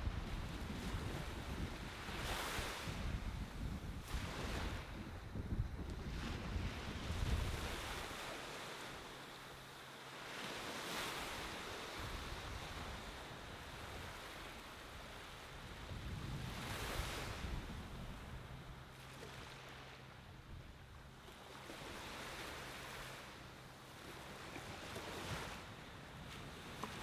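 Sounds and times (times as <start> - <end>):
wind rumble on microphone: 0.0 - 9.1, 10.4 - 27.0
ocean waves on beach: 0.0 - 27.0.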